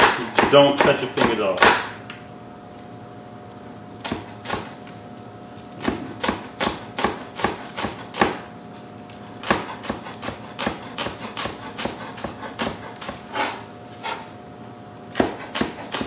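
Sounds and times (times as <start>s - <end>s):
knife chopping on cutting board: 0.0s - 2.0s, 4.0s - 4.8s, 5.8s - 8.5s, 9.4s - 14.3s, 15.1s - 16.0s.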